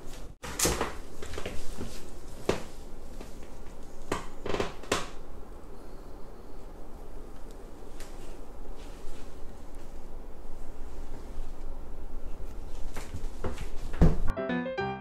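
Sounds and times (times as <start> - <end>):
comb rustling through hair: 0.0 - 4.1, 7.2 - 14.0.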